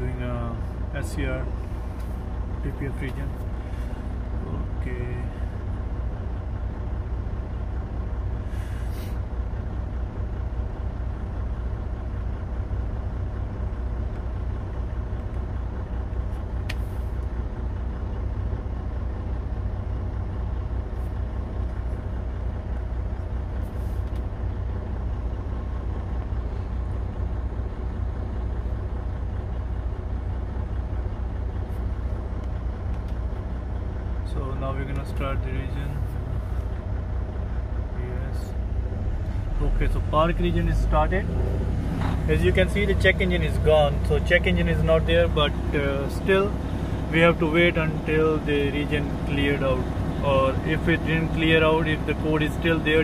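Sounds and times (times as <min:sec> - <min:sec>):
diesel engine idling: 0:00.0 - 0:53.0.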